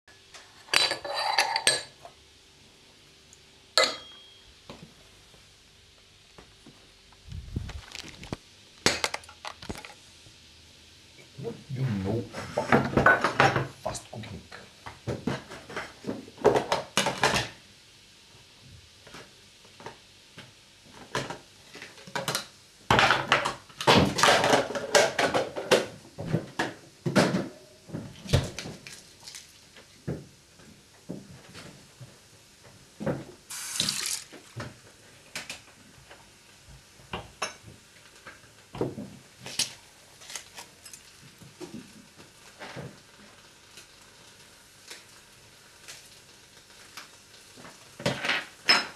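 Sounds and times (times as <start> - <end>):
handling and splashing noise: 33.6 - 34.7.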